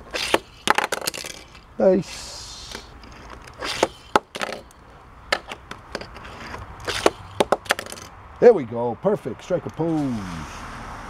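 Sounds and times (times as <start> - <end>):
toy cars clicking and knocking: 0.2 - 1.6, 2.6 - 8.1.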